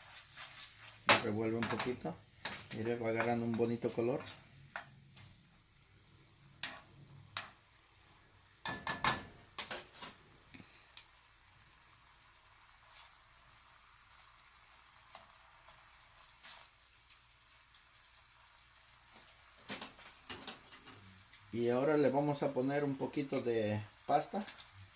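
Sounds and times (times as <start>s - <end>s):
sauce sizzling in a pan: 0.0s - 24.9s
utensils scraping a pan: 6.6s - 6.9s.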